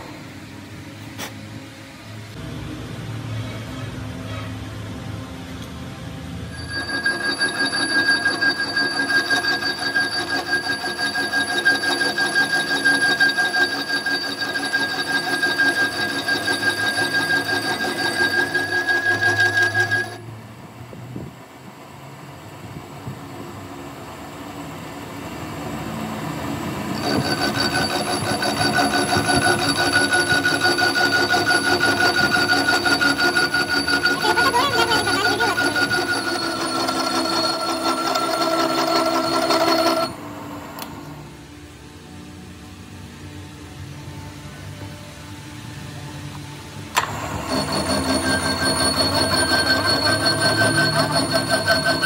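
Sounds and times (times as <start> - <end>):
lathe cutter squealing on metal: 6.5 - 20.3, 26.8 - 40.2, 47.0 - 52.0.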